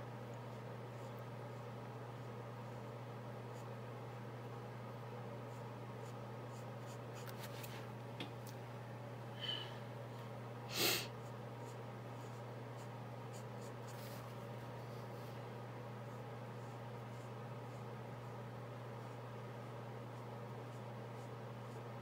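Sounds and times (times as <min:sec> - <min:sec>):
person sniffing: 0:10.7 - 0:11.1.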